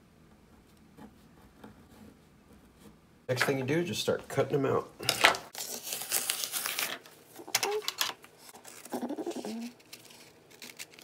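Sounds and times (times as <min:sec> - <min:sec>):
stiff paper crinkling: 0:05.5 - 0:11.0.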